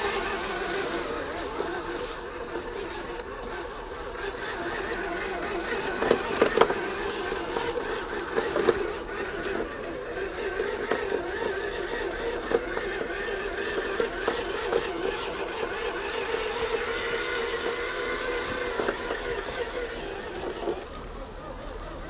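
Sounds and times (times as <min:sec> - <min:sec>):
leaves and twigs crackling: 0:00.0 - 0:12.5
electric motor and gearbox whining: 0:00.0 - 0:22.0.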